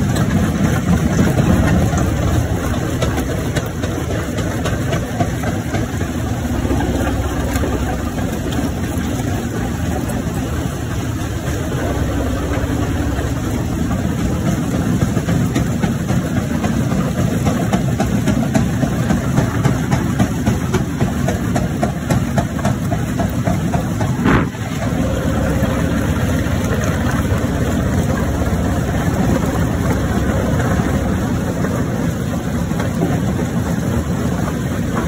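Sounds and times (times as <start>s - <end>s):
heavy machine drone: 0.0s - 35.0s.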